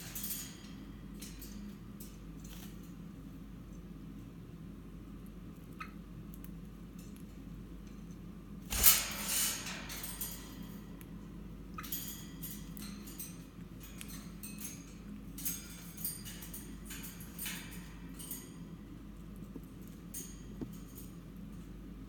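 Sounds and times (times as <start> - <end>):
birdcage clatter: 0.0 - 3.2, 8.6 - 21.7
light clicks on metal bars: 11.8 - 18.6.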